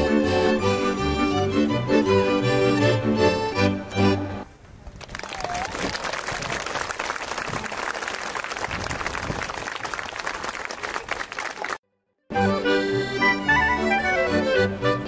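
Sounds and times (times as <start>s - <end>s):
folk music with accordion: 0.0s - 4.5s, 12.0s - 15.0s
audience applauding: 4.9s - 11.8s.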